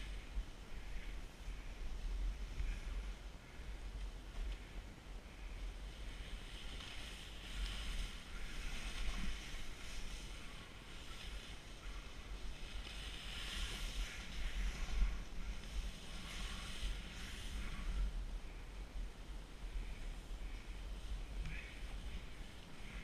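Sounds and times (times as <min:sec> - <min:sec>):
snowboard hissing over snow: 0:05.9 - 0:18.1.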